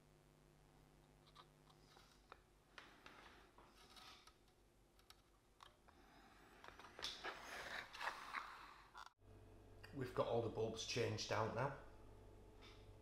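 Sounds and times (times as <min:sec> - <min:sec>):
faint clicks and scrapes: 0:01.0 - 0:09.2.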